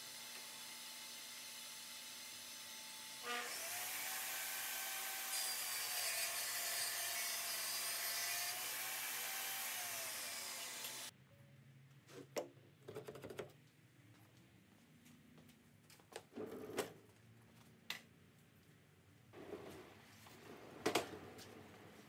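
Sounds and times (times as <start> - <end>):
table saw cutting wood: 0.0 - 11.1.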